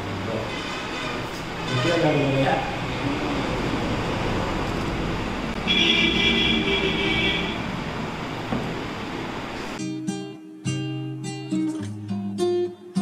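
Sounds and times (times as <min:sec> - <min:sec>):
traffic noise: 0:00.0 - 0:09.8.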